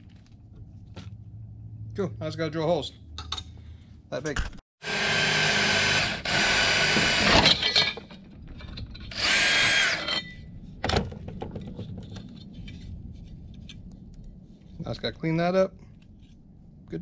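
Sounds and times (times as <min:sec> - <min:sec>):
electric drill boring: 0:04.8 - 0:07.9, 0:09.1 - 0:10.3.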